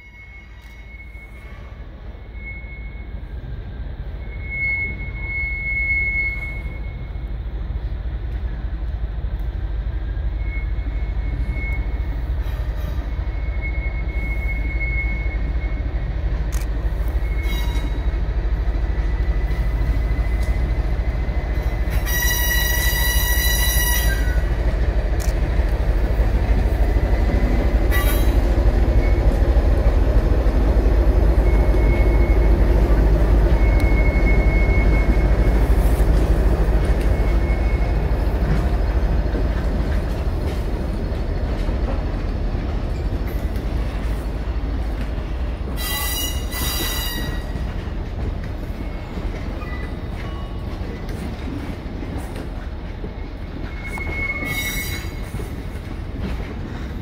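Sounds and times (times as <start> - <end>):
high-pitched wheel squeal: 0.0 - 3.4, 4.1 - 7.2, 16.9 - 18.2, 19.1 - 24.5, 26.9 - 29.6, 31.4 - 36.0, 36.8 - 38.7, 45.7 - 47.7, 53.6 - 55.6
diesel locomotive engine: 0.0 - 57.0.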